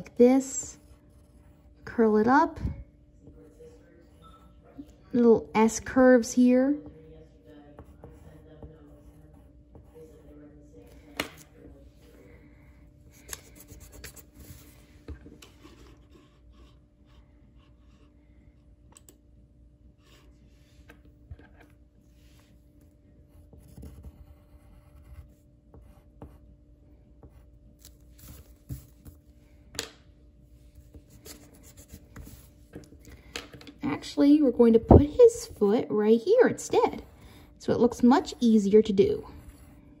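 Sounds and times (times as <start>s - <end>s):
steady low hum: 0.0s - 40.0s
pencil scratching on paper: 0.4s - 2.1s, 7.8s - 11.0s, 13.1s - 14.8s, 23.3s - 26.4s, 30.8s - 32.6s, 36.4s - 40.0s.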